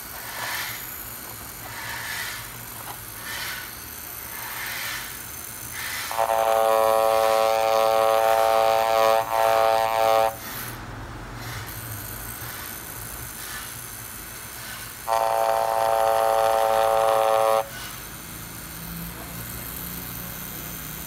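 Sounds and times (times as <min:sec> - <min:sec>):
tattoo pen electric buzz: 0:00.0 - 0:10.8, 0:11.4 - 0:21.0.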